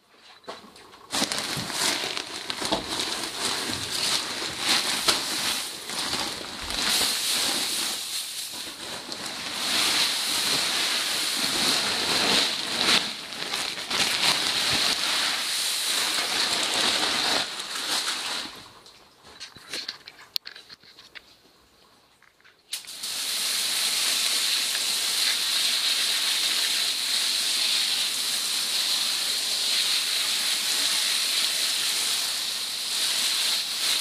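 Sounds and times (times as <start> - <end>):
straw pouring from a sack: 1.1 - 18.7.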